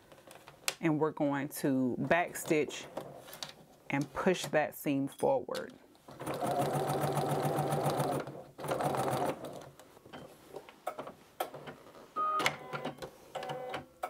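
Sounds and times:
sewing machine stitching: 0:06.1 - 0:09.6.

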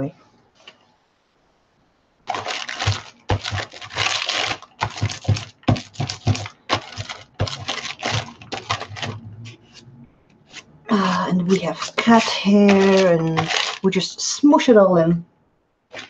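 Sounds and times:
roller rasping on paper: 0:02.3 - 0:09.8, 0:11.4 - 0:13.9.

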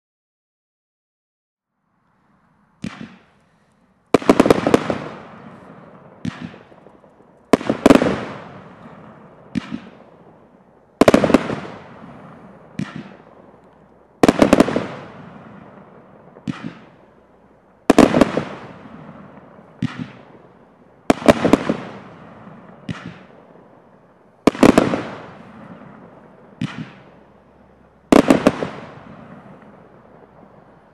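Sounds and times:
firework shells bursting: 0:02.8 - 0:17.2, 0:24.5 - 0:30.9.

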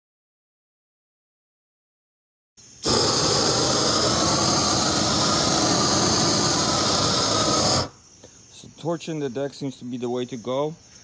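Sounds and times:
propane torch flame rushing: 0:02.8 - 0:08.0.

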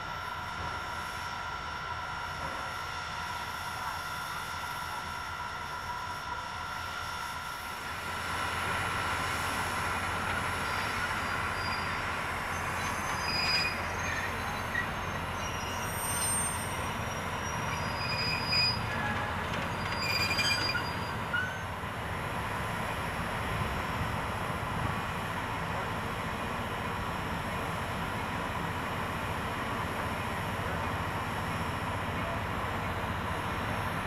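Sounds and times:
train cars rumbling: 0:07.7 - 0:34.0
high wheel squeals: 0:10.4 - 0:21.8.

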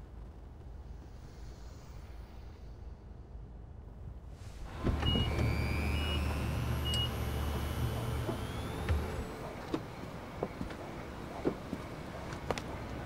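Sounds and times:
faint rising whine: 0:00.0 - 0:10.3
car running at low speed: 0:00.0 - 0:13.0.

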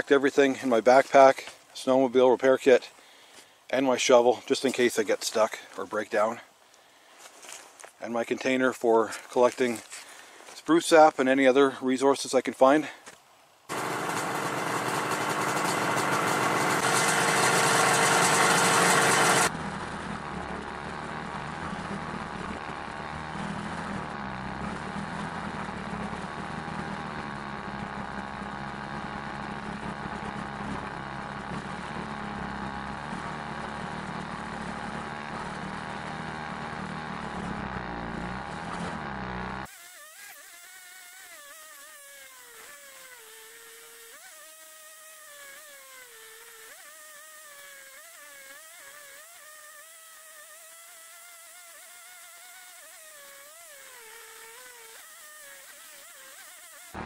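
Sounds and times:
snowmobile engine running: 0:13.7 - 0:39.7, 0:55.8 - 0:57.0.

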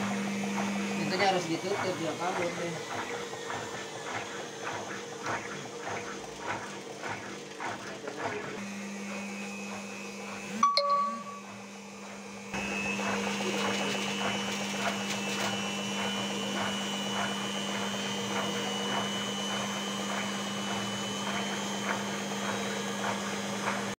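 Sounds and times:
washing machine motor hum: 0:00.0 - 0:24.0
thin high whine: 0:10.6 - 0:11.6.

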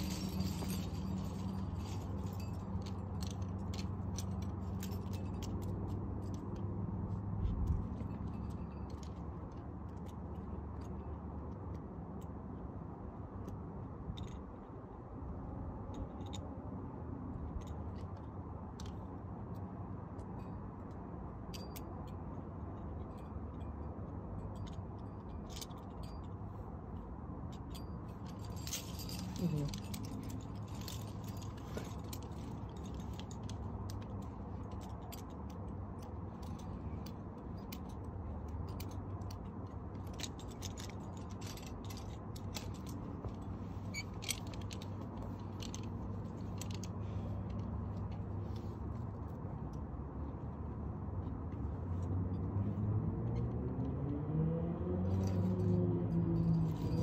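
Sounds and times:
metal climbing gear clinking: 0:00.0 - 0:54.1, 0:54.9 - 0:57.0.

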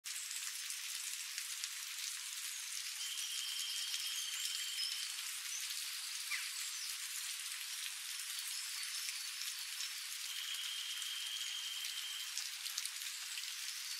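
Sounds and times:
rain on leaves: 0:00.0 - 0:13.9.

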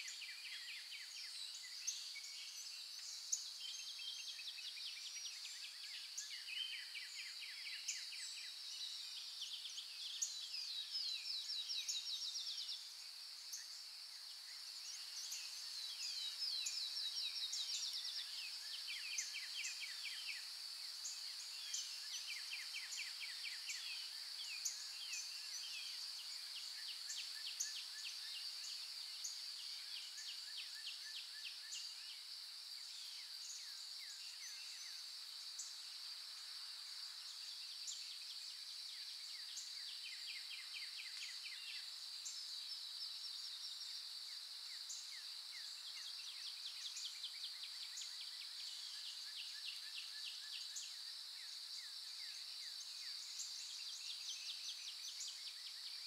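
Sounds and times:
rapid bird trills and chirps: 0:00.0 - 0:32.2.

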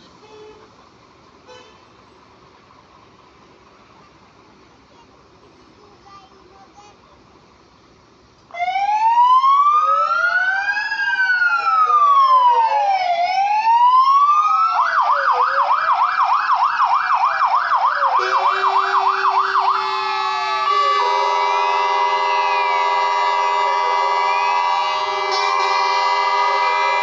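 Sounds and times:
fire engine sirens wailing: 0:08.5 - 0:27.0
siren fast yelp: 0:08.6 - 0:27.0
steady horn tones: 0:18.2 - 0:27.0.

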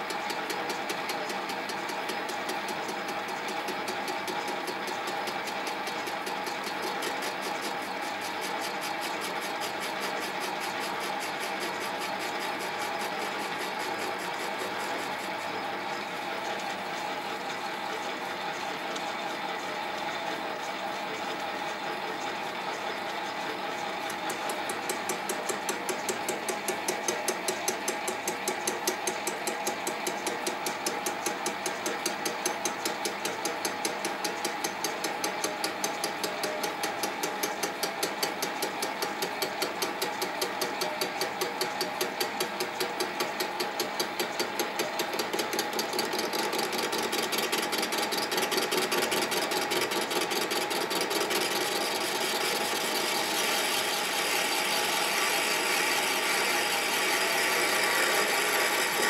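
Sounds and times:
lathe cutting metal pulsing: 0:00.9 - 0:19.9, 0:43.8 - 0:59.0.

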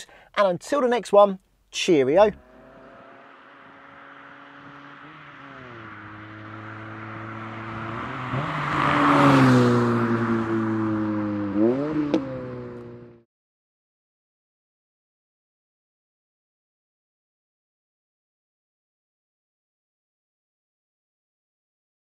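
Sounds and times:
engine revving: 0:02.3 - 0:13.2
sports car driving past: 0:02.4 - 0:13.2.

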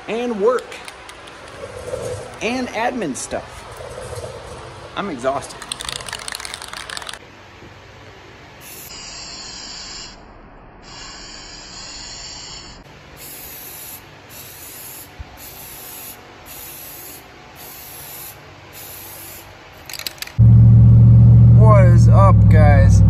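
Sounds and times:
spray paint can hissing: 0:08.6 - 0:10.0, 0:13.2 - 0:20.4.

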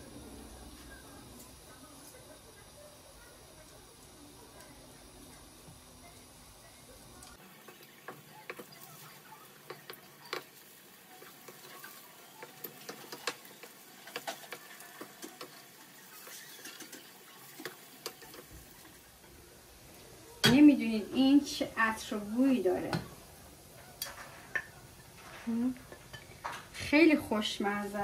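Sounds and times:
bread frying in a pan: 0:00.0 - 0:28.0
clicks and taps in pan: 0:11.2 - 0:15.6.

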